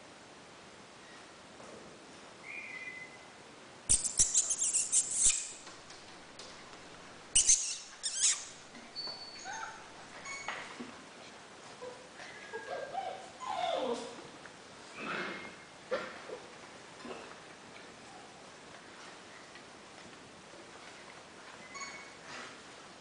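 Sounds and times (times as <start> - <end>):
puppies squeaking and whimpering: 3.9 - 5.7, 7.4 - 10.6, 21.6 - 22.2.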